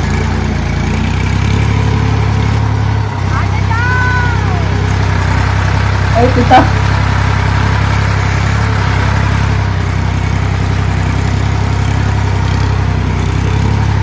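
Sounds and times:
tractor diesel engine droning: 0:00.0 - 0:14.0.

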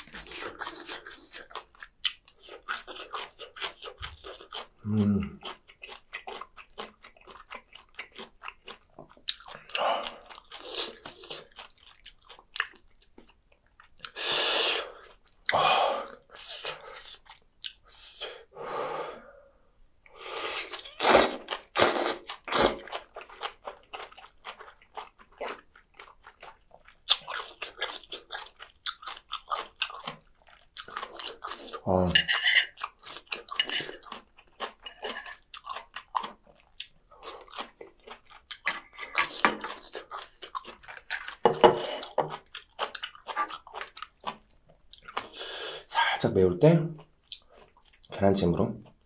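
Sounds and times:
close-miked chewing and crunching: 0:00.0 - 0:18.0, 0:20.0 - 0:46.3, 0:46.9 - 0:49.0
slurping broth: 0:14.1 - 0:15.1, 0:20.1 - 0:22.9.

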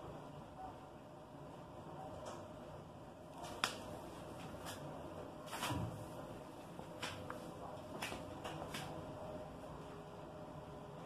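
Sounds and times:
faint machine hum: 0:00.0 - 0:11.0.

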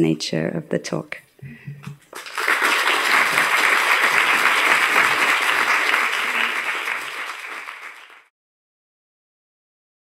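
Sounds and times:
audience applauding: 0:02.1 - 0:08.3.

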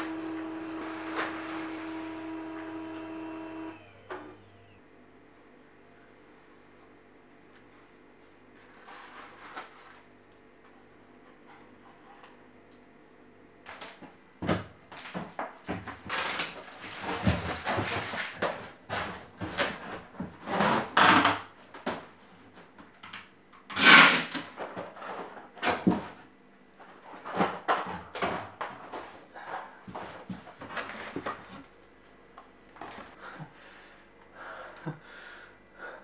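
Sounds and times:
packing tape pulled off roll: 0:15.9 - 0:19.8, 0:23.0 - 0:24.6.

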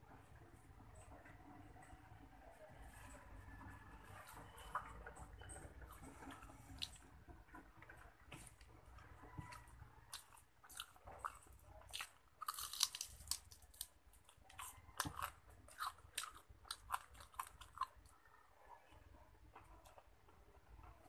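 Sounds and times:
crunchy chewing: 0:05.7 - 0:21.0.

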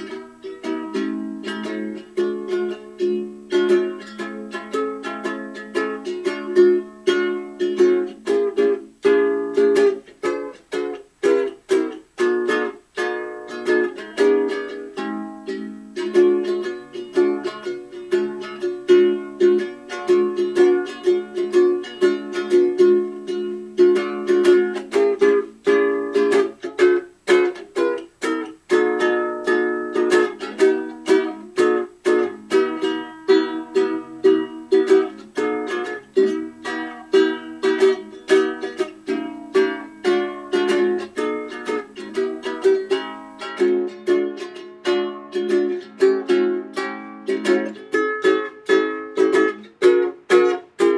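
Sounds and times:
strummed ukulele chords: 0:00.0 - 0:50.9.

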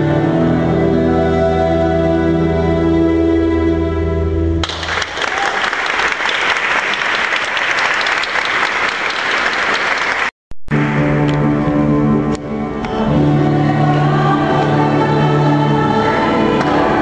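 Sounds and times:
instrumental ensemble music: 0:00.0 - 0:04.8, 0:10.8 - 0:17.0
audience applauding: 0:04.6 - 0:11.0.

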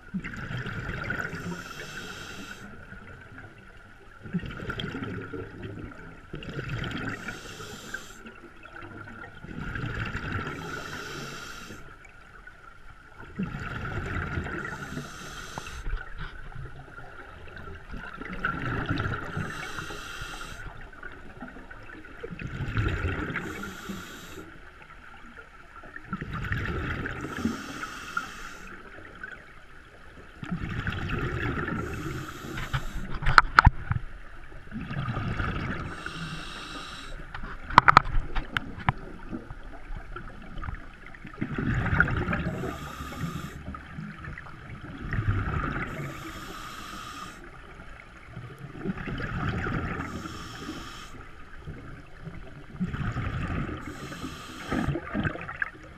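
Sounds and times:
burble of exhaled bubbles: 0:00.0 - 0:12.1, 0:13.1 - 0:27.9, 0:30.3 - 0:55.9
scuba regulator inhalation hiss: 0:01.2 - 0:02.8, 0:07.1 - 0:08.2, 0:10.6 - 0:11.9, 0:14.4 - 0:15.9, 0:19.2 - 0:20.7, 0:23.3 - 0:24.5, 0:27.2 - 0:28.8, 0:31.7 - 0:33.1, 0:35.8 - 0:37.2, 0:42.4 - 0:43.8, 0:45.8 - 0:47.5, 0:49.9 - 0:51.3, 0:53.8 - 0:55.0.

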